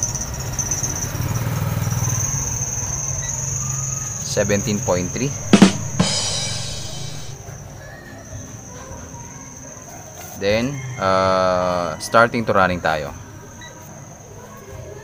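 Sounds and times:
insects buzzing: 1.7 - 7.4.

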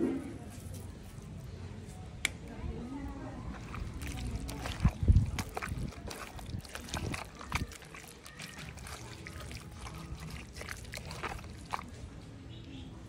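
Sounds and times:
spoon stirring wet food: 3.4 - 12.7.

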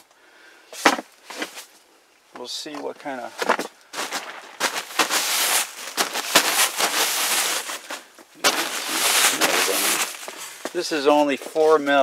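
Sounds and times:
plastic sheeting crackling: 3.5 - 10.8.

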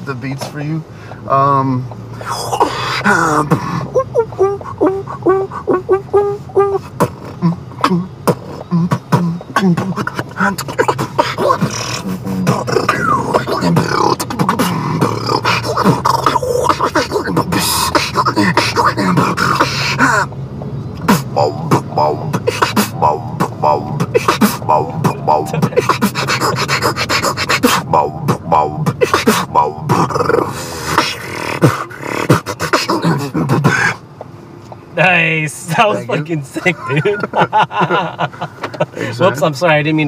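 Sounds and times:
beatboxing: 2.2 - 20.4, 21.0 - 34.0.

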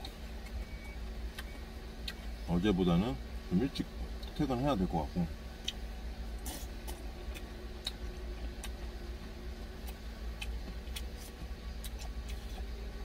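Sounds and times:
steady low hum: 0.0 - 13.0
chewing clicks: 9.8 - 12.7.

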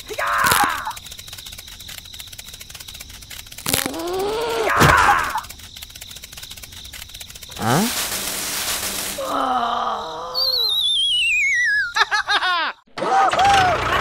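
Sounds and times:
quick descending chirps: 7.5 - 12.0
wavering wail: 9.2 - 11.0
falling warbling whistle: 9.2 - 12.0.

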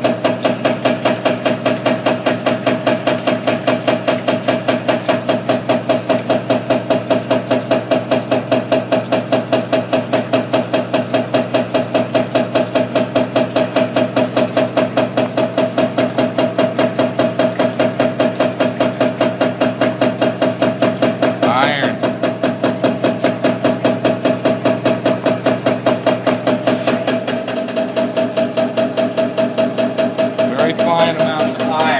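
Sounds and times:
machine motor hum: 0.0 - 31.9
rhythmic mechanical knocking: 0.0 - 31.9.

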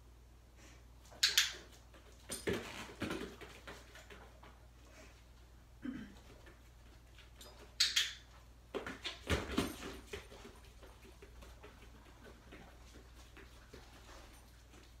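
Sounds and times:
dog thumps and scuffles: 8.7 - 15.0.

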